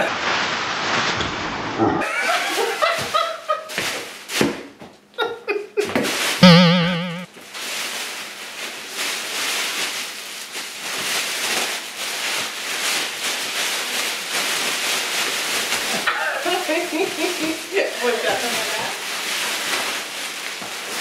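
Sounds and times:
plastic trash bag rustling: 2.1s - 4.8s, 7.4s - 21.0s.

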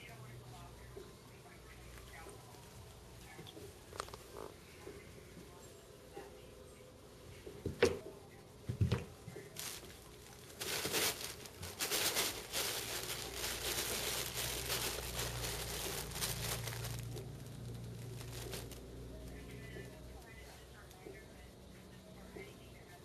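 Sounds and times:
crinkle tunnel rustling: 9.3s - 21.0s.

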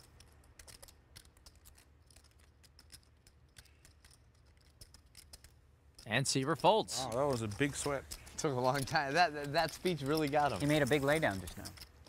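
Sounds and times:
poker chips clicking: 0.0s - 12.0s.

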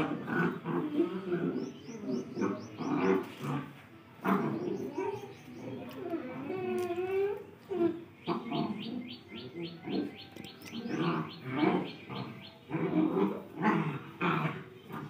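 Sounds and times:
dogs growling and whining: 0.0s - 15.0s.

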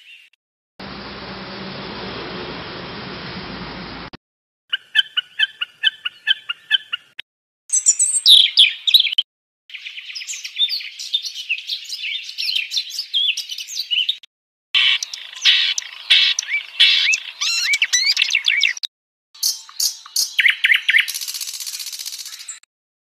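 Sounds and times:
bird chirps repeated: 4.7s - 14.2s, 14.8s - 22.7s
rapid bird warbling song: 4.7s - 14.2s, 14.8s - 22.7s.

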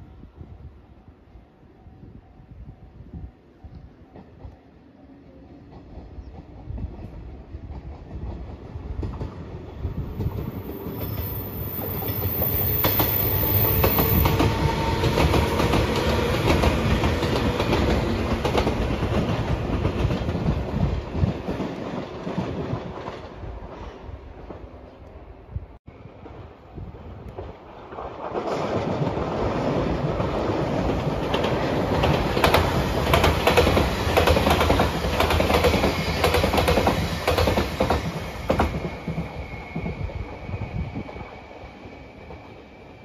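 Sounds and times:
electric train passing: 0.0s - 43.0s.

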